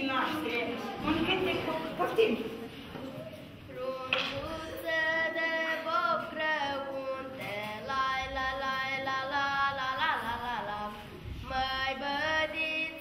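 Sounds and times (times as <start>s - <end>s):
girl singing unaccompanied: 3.6s - 13.0s.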